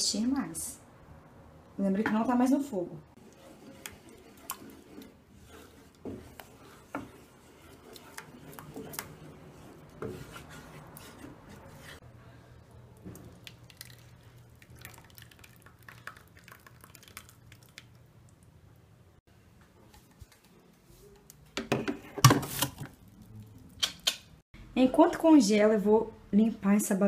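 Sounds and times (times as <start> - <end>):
spoon stirring in metal saucepan: 3.1 - 12.1
cream pouring: 13.1 - 18.0.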